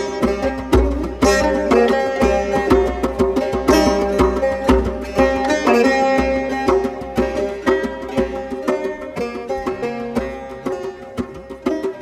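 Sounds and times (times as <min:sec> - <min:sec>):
low drum beat: 0:00.0 - 0:12.0
plucked string notes: 0:00.0 - 0:12.0.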